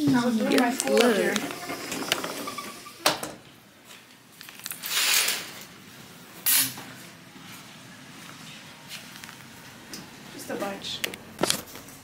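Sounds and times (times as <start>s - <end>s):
sliding door scraping: 0.2s - 3.0s, 4.8s - 5.6s.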